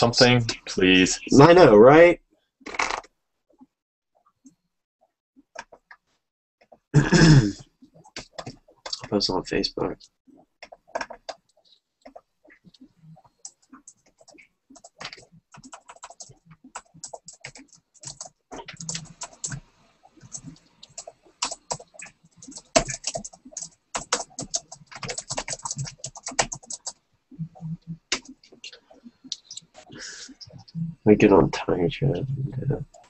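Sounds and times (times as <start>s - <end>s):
computer keyboard typing: 7.9s - 9.1s, 10.6s - 30.7s.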